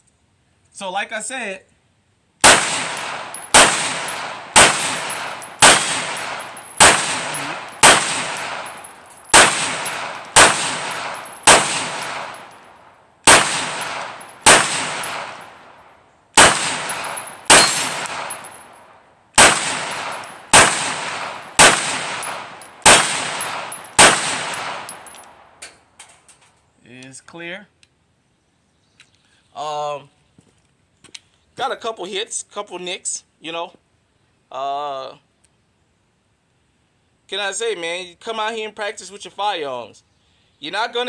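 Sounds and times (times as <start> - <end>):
pistol shots echoing: 2.4 - 15.7, 16.4 - 18.6, 19.4 - 25.5.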